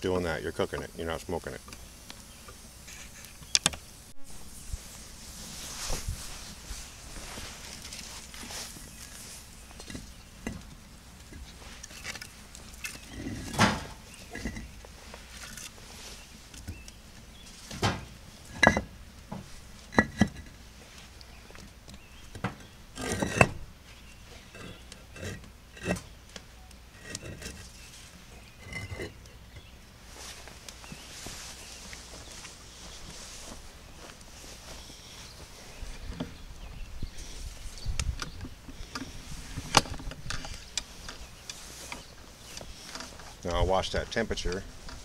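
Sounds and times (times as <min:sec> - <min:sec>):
wood fire crackling: 0:00.0 - 0:45.0
firewood clunking against blocks: 0:09.8 - 0:14.7, 0:17.7 - 0:20.5, 0:22.3 - 0:23.6.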